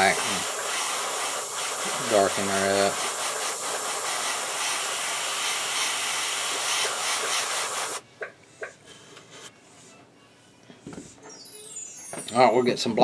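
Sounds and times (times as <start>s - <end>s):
airbrush hissing: 0.0s - 8.0s.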